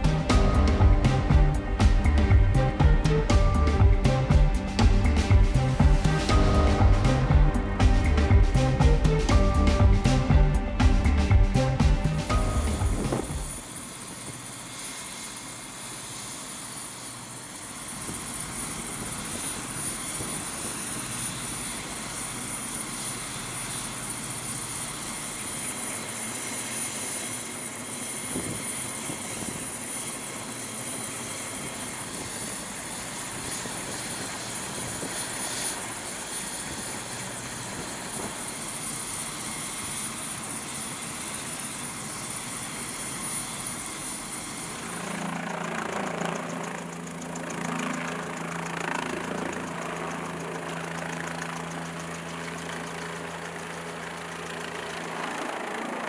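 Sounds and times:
steady low hum: 0:00.0 - 0:13.7, 0:44.2 - 0:55.0
thin high whine: 0:00.0 - 0:55.7
helicopter turbine and rotor noise: 0:00.0 - 0:56.0.

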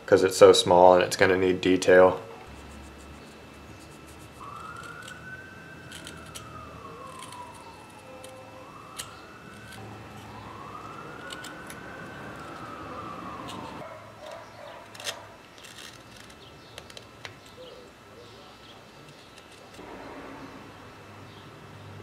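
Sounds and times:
siren wailing: 0:04.3 - 0:14.4.

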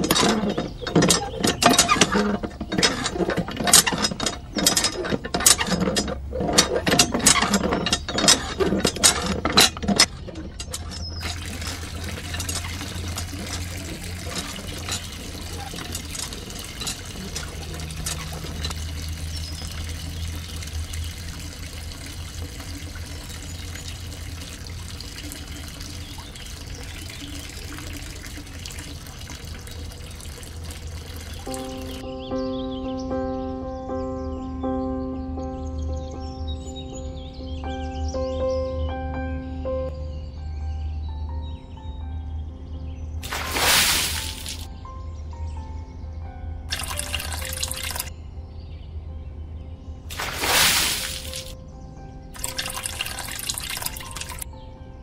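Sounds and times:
water gushing from hand pump: 0:00.0 - 0:32.0, 0:43.2 - 0:44.7, 0:46.7 - 0:48.1, 0:50.1 - 0:51.6, 0:52.4 - 0:54.5
water trickling into trough: 0:00.0 - 0:32.0, 0:43.2 - 0:44.7, 0:46.7 - 0:48.1, 0:50.1 - 0:51.6, 0:52.4 - 0:54.5.

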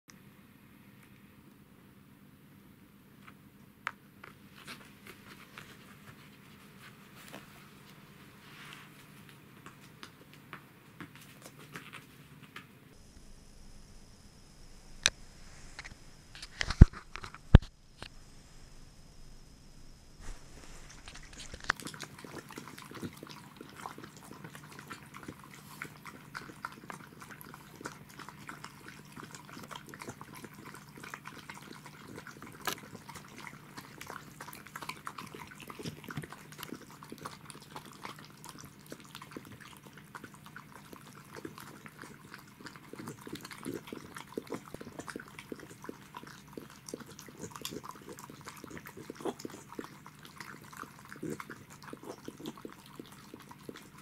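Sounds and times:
dog lapping and slurping: 0:20.8 - 0:54.0.

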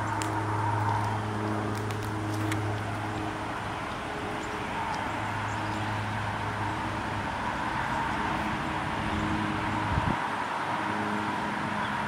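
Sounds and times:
road traffic: 0:00.0 - 0:12.0.

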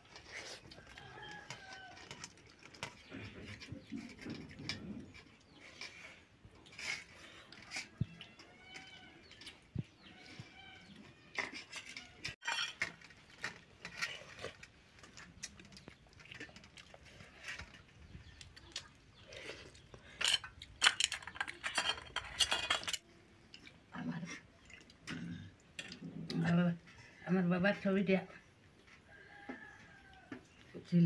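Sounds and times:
steel plates and bowls clinking: 0:11.4 - 0:14.6, 0:20.1 - 0:23.1.

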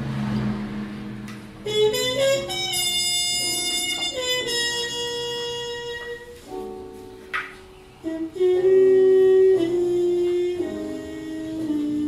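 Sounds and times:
slow melody of long held notes: 0:00.0 - 0:12.0.

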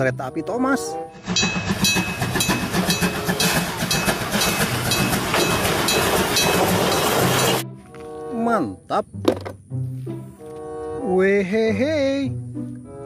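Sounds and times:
steam locomotive chuffing and clanking: 0:01.1 - 0:07.6
level-crossing bell ringing: 0:01.3 - 0:07.6.

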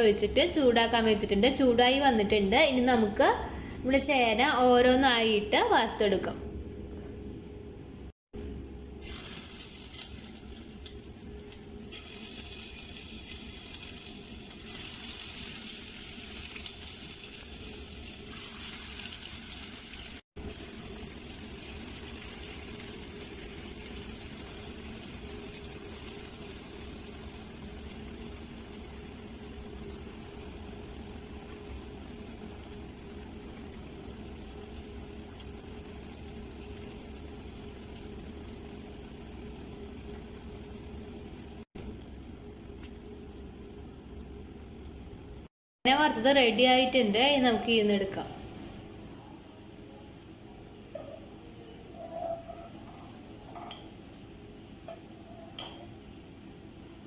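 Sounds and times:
food sizzling in hot oil: 0:09.0 - 0:41.7.

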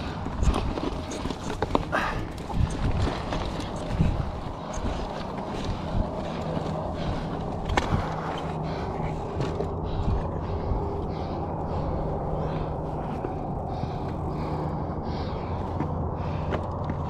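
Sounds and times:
bike knocking and rattling on rocks: 0:00.0 - 0:10.3
steady low hum: 0:00.0 - 0:17.0.

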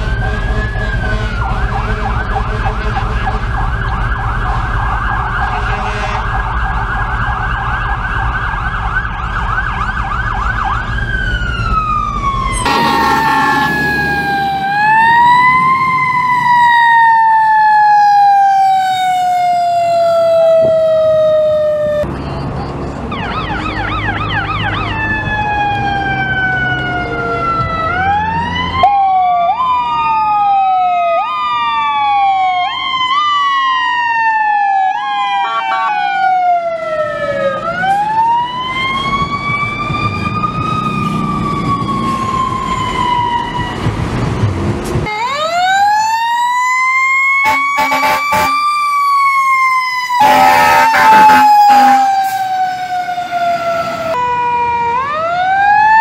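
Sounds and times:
emergency vehicle sirens: 0:00.0 - 0:56.0
low air horn blasts: 0:05.5 - 0:06.4, 0:12.6 - 0:15.3, 0:47.4 - 0:48.7, 0:50.2 - 0:52.5.

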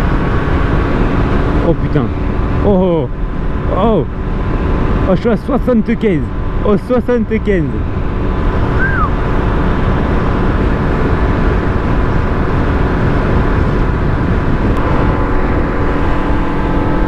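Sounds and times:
scooter engine drone: 0:00.0 - 0:17.0
wind rumble on microphone: 0:07.5 - 0:17.0.

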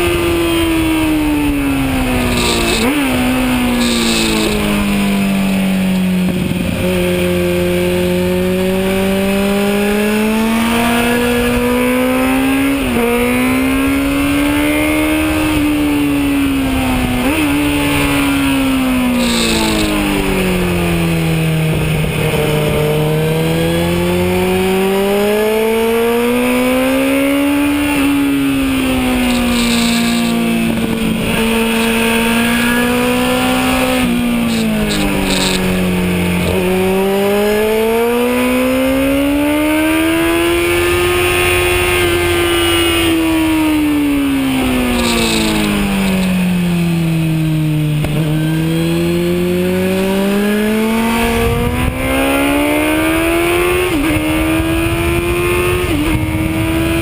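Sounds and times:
motorcycle engine revving: 0:00.0 - 0:57.0
wind hiss: 0:44.6 - 0:46.3.

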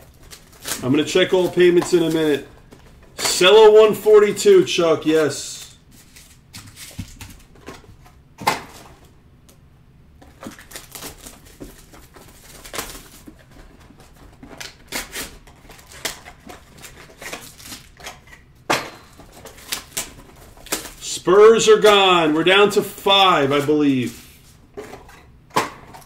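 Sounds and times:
shrink-wrap crinkling: 0:00.0 - 0:03.0, 0:10.2 - 0:18.4, 0:19.1 - 0:21.1.

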